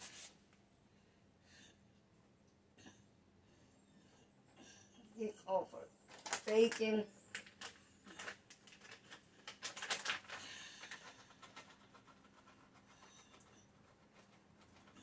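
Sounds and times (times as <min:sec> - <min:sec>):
plastic bag crinkling: 0:06.1 - 0:11.5.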